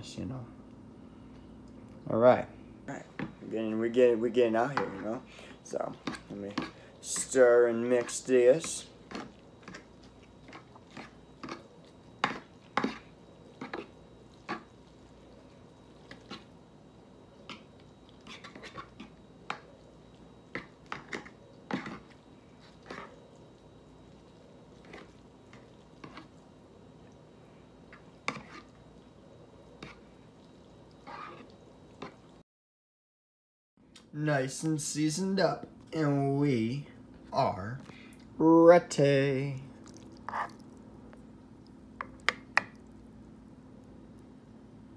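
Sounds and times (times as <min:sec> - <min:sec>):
fork scraping plastic bowl: 0:06.0 - 0:14.7, 0:17.5 - 0:19.2, 0:20.5 - 0:23.1, 0:24.8 - 0:26.3, 0:27.9 - 0:28.8, 0:31.0 - 0:32.2.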